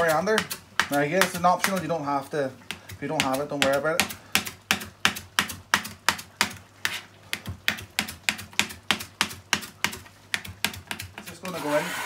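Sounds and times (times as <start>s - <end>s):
knife chopping on plastic board: 0.0s - 2.0s, 2.7s - 11.6s.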